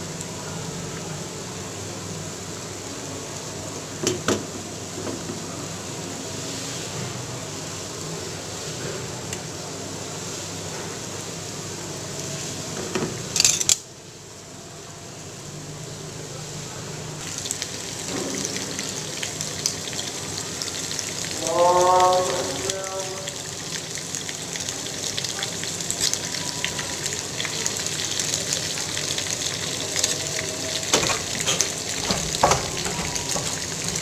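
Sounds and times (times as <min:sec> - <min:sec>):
corn dogs sizzling in oil: 0:00.0 - 0:34.0
oil popping: 0:30.9 - 0:34.0.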